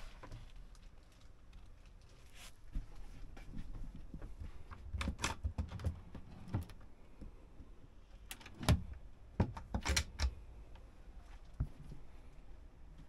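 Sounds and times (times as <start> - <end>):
locker latch clicks and knocks: 8.3 - 10.4.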